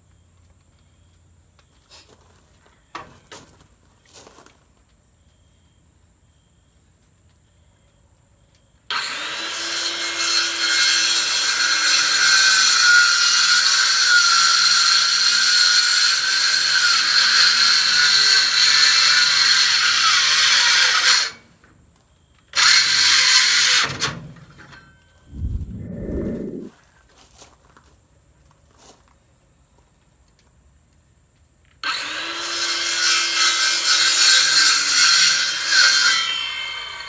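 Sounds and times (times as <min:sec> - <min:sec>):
circular saw cutting wood: 0:08.9 - 0:21.4, 0:22.6 - 0:24.2, 0:31.8 - 0:37.0.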